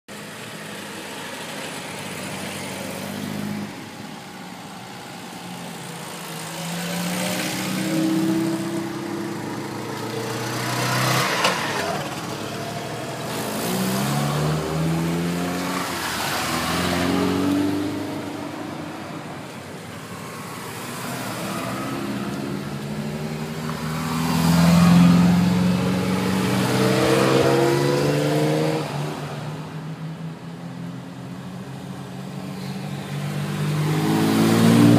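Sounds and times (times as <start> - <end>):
cars driving past: 0.2 - 34.9.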